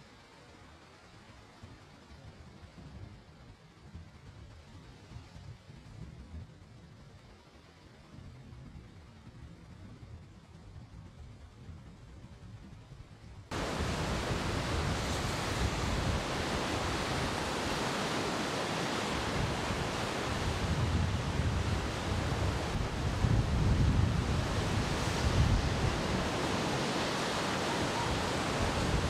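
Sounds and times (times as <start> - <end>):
wind on microphone: 8.1 - 29.0
waves crashing on rocks: 13.5 - 29.0.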